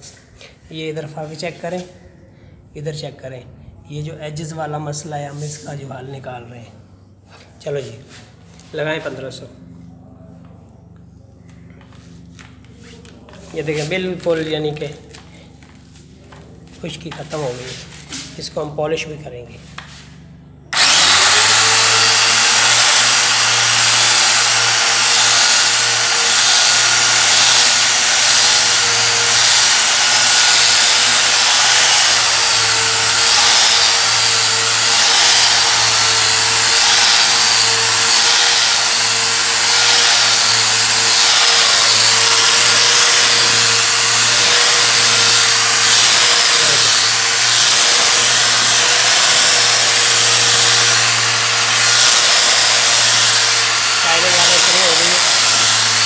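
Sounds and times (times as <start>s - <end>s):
angle grinder motor whine: 20.7s - 56.0s
polishing pad hissing on stone: 20.8s - 56.0s.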